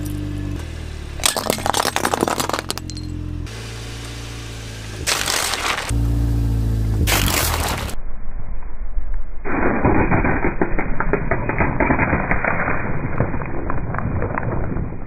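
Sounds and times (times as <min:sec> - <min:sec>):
dense crackling: 0:09.4 - 0:15.0.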